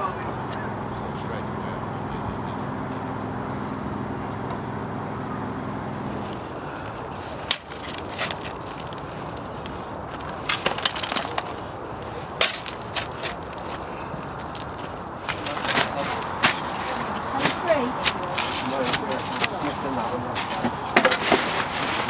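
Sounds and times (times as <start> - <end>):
steady low hum: 0.0 - 22.0
gravel tipping into wheelbarrow: 6.1 - 17.8, 18.4 - 22.0
shovel digging gravel: 6.2 - 17.8, 18.4 - 22.0.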